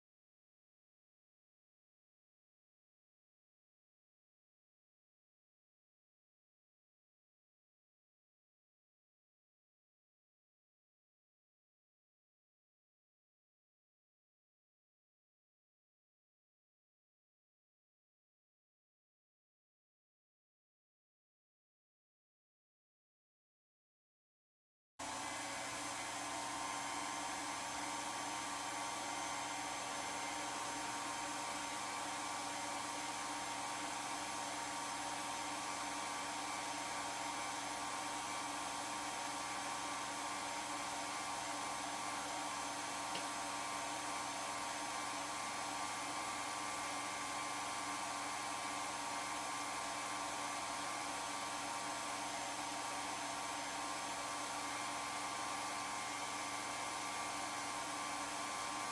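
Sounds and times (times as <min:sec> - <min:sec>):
film projector whirring: 0:25.0 - 0:58.9.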